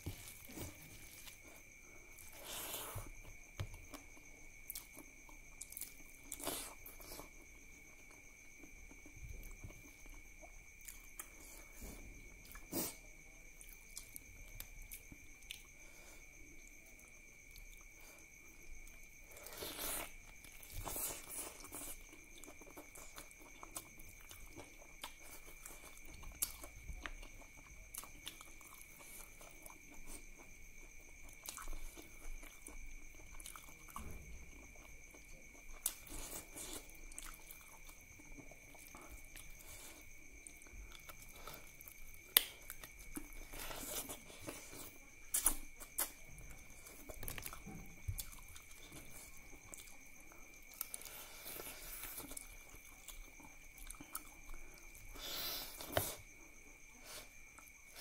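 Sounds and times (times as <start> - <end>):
person chewing food: 0.0 - 58.0.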